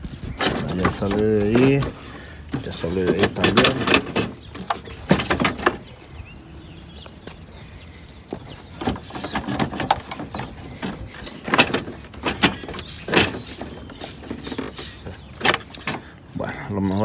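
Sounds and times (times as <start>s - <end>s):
plastic scraping: 0.0s - 6.0s, 8.3s - 16.1s
hard plastic clicks and knocks: 0.4s - 5.9s, 8.3s - 16.1s.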